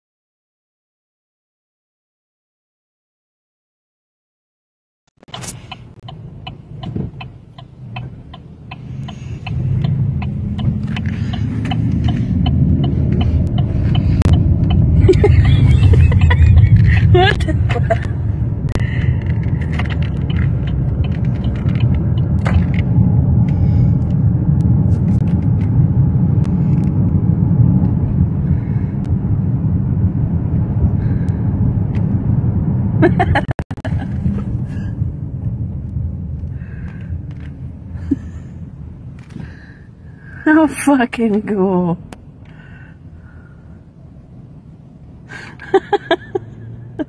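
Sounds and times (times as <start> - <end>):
car cabin road and wind rumble: 5.2 - 47.0.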